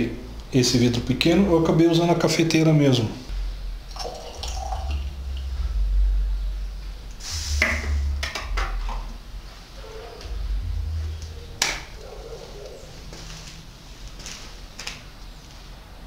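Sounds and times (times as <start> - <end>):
uneven low rumble: 3.3 - 14.2.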